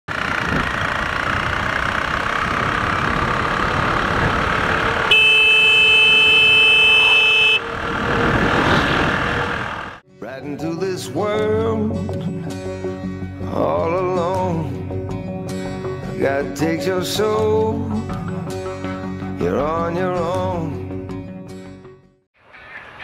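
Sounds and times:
wind rush: 0.1s - 5.1s, 7.6s - 10.0s
motorcycle running: 0.1s - 10.0s
vehicle horn blast: 4.8s - 8.5s.

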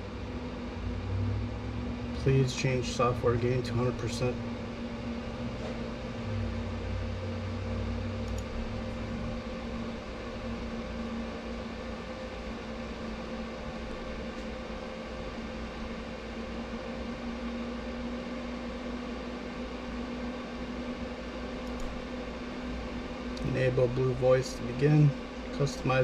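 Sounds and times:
room noise hum and hiss: 0.0s - 26.0s.

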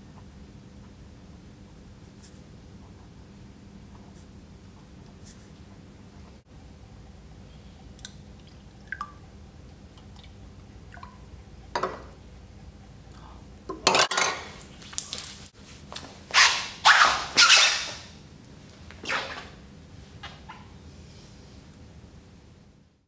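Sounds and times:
light drips: 7.6s - 12.2s, 14.5s - 15.5s
liquid splashing: 14.4s - 15.6s.

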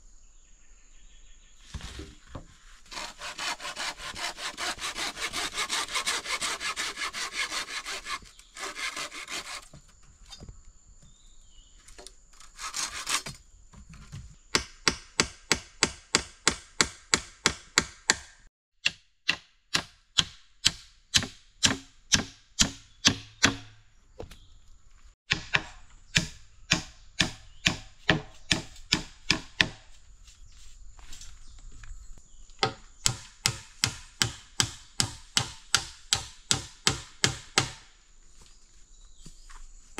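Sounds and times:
sawing bamboo: 2.4s - 10.4s, 12.4s - 13.4s, 19.8s - 23.6s, 25.3s - 29.8s, 32.6s - 37.9s
blade chopping bamboo: 2.9s - 9.8s, 18.9s - 23.7s, 25.3s - 29.8s, 32.6s - 37.9s.

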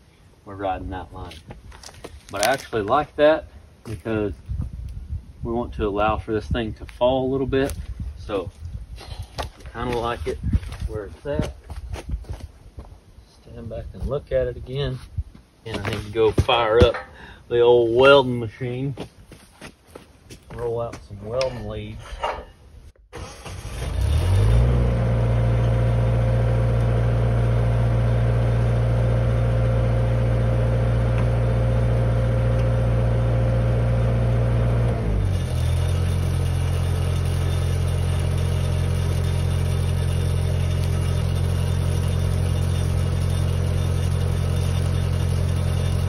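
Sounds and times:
welding machine engine running: 24.0s - 46.0s.

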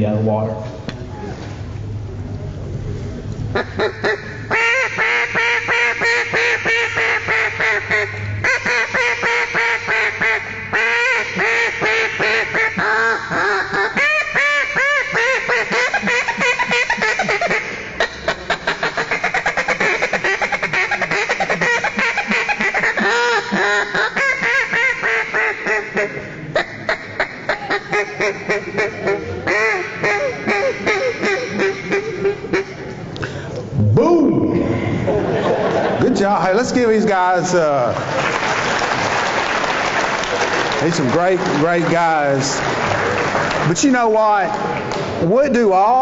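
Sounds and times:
duck call quacking: 3.5s - 32.8s.

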